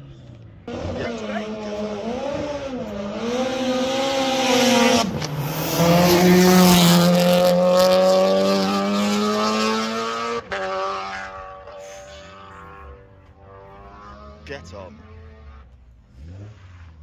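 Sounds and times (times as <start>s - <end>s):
race car accelerating past: 0.6s - 17.0s.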